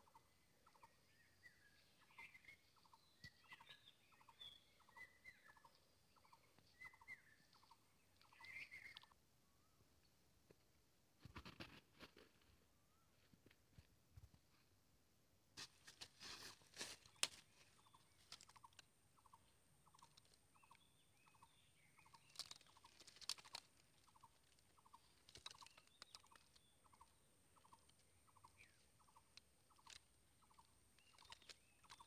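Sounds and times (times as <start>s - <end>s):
rustling in dry leaves: 15.6s - 18.8s, 22.0s - 32.0s.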